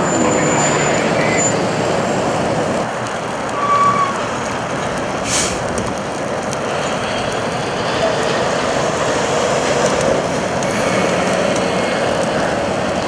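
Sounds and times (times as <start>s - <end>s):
freeway traffic with trucks: 0.0s - 13.0s
short high hiss: 5.2s - 5.7s.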